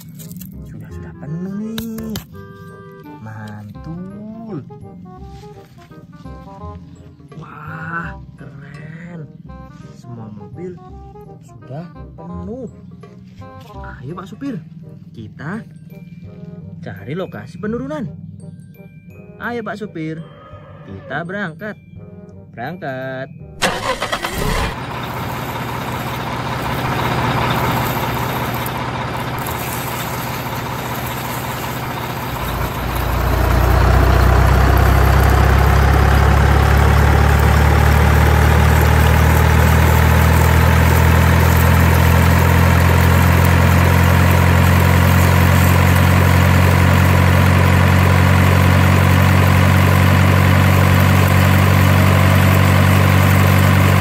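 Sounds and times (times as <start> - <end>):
truck engine running: 0.0 - 7.4, 23.6 - 54.0.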